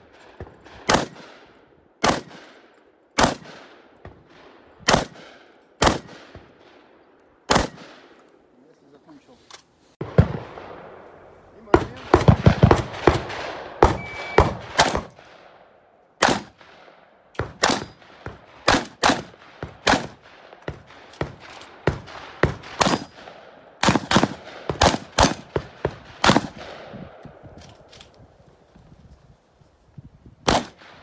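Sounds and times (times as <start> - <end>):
shotgun firing: 0.4 - 1.4, 2.0 - 6.7, 7.5 - 8.1, 10.0 - 15.6, 16.2 - 27.2, 30.4 - 31.0.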